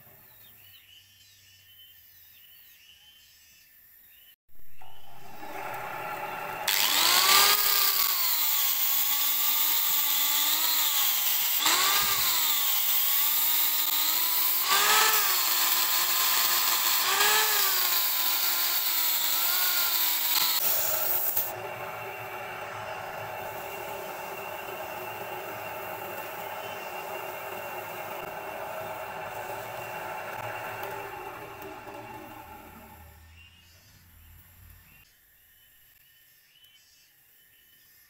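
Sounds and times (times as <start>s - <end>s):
lathe motor hum: 4.8s - 33.2s
angle grinder sanding wood: 5.2s - 33.1s.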